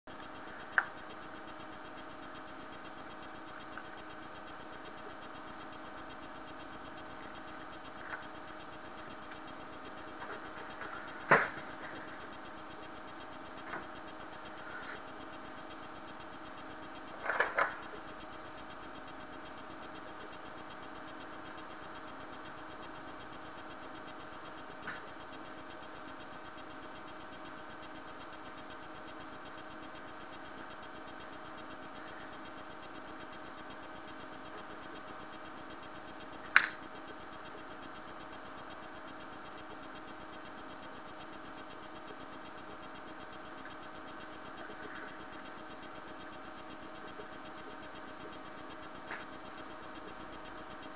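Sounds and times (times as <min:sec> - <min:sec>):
hum of held tones: 0:00.1 - 0:50.9
sharp click: 0:36.4 - 0:36.9.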